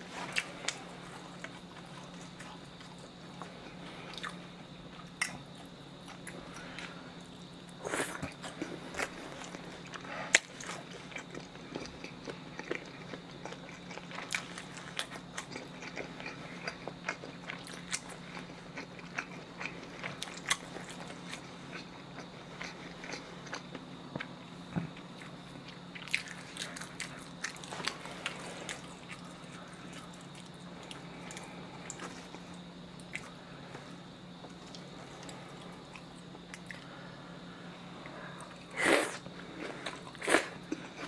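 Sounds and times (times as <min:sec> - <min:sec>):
faint low hum: 0:00.0 - 0:41.0
close chewing with mouth clicks: 0:00.2 - 0:24.4, 0:25.0 - 0:33.3.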